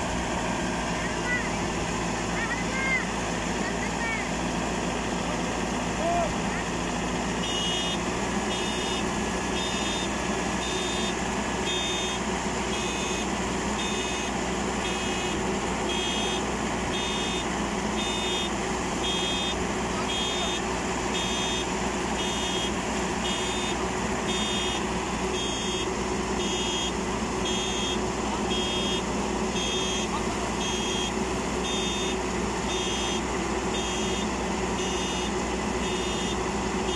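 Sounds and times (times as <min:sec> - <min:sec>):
combine harvester engine running: 0:00.0 - 0:36.9
electronic warning beeper: 0:12.8 - 0:20.6, 0:21.2 - 0:24.8, 0:25.4 - 0:36.4.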